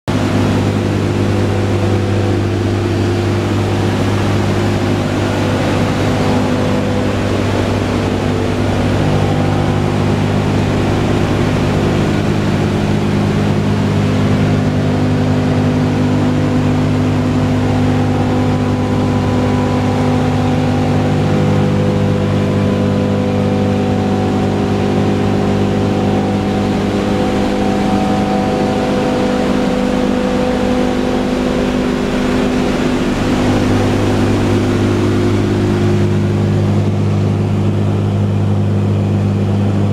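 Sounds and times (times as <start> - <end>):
radial engines droning: 0.1 - 39.9.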